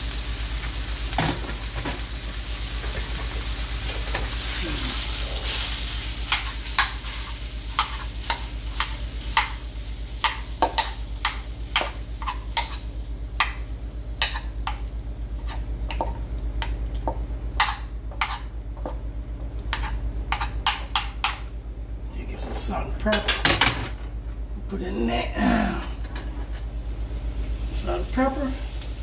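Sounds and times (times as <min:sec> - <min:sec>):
meat popping in a skillet: 0:00.0 - 0:18.5
steady low hum: 0:00.0 - 0:29.0.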